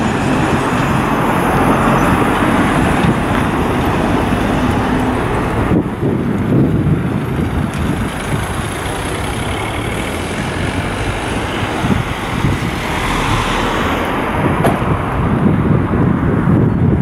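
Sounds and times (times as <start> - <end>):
cars driving past: 0.0 - 16.7.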